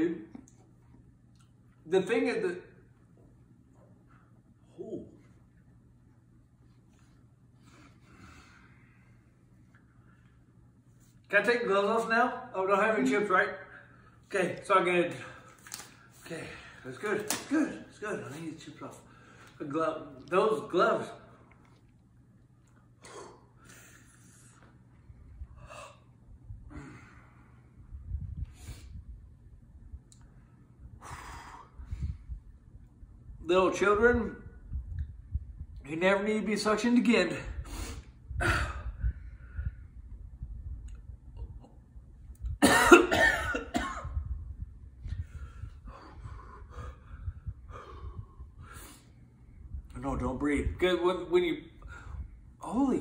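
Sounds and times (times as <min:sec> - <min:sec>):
man breathing sharply: 0:07.5 - 0:10.4, 0:23.0 - 0:24.8, 0:25.4 - 0:29.1, 0:30.9 - 0:32.4, 0:45.1 - 0:49.6, 0:51.8 - 0:52.5
man coughing hard: 0:38.4 - 0:38.9, 0:42.6 - 0:44.2.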